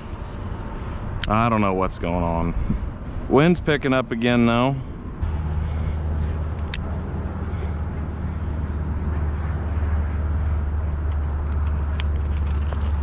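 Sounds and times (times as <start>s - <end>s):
wind buffeting microphone: 0.6s - 3.9s.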